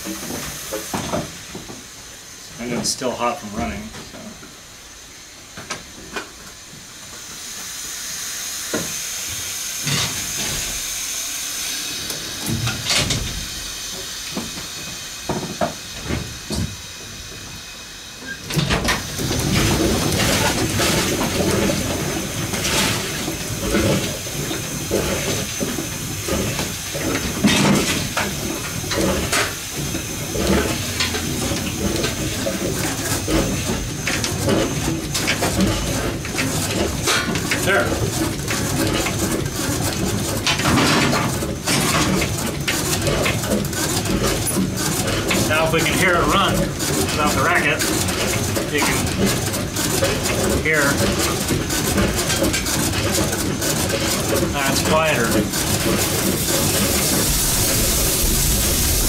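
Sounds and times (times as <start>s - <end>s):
steam hissing: 0.0s - 59.0s
steam engine knocking: 19.0s - 59.0s.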